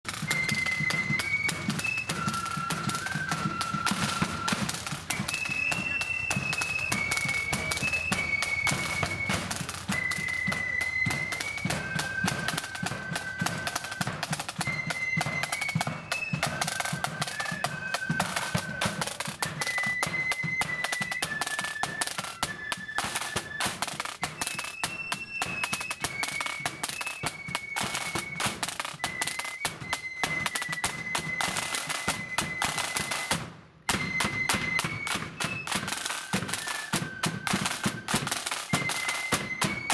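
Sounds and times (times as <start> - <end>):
flutes playing melody: 0.0 - 39.9
side drum rolls: 0.1 - 39.9.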